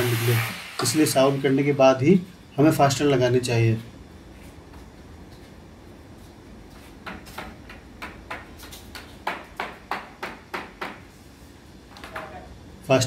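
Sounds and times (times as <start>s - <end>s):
hammer tapping on window frame: 7.0s - 11.0s.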